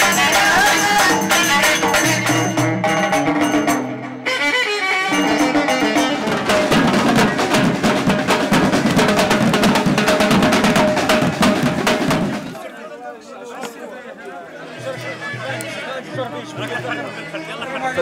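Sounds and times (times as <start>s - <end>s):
hand drums: 0.0s - 4.4s, 5.1s - 12.6s
folk ensemble playing: 0.0s - 12.6s
string instrument melody: 0.0s - 12.6s
marching drums pounding: 5.9s - 12.6s.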